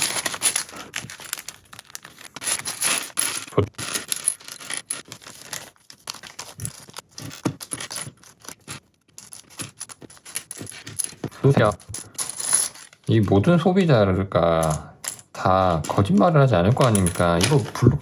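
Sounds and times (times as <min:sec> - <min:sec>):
plastic bags crinkling: 0:00.0 - 0:08.6.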